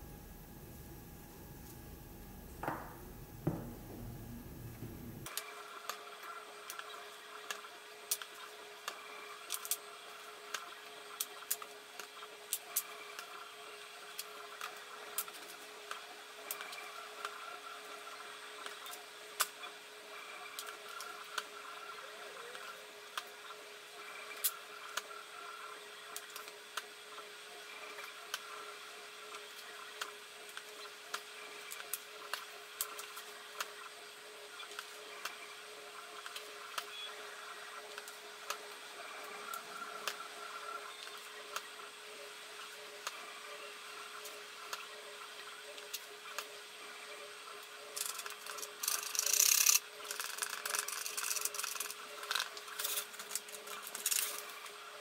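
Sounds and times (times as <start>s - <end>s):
steady background hum: 0.0s - 55.0s
wooden blocks knocking: 2.6s - 4.2s.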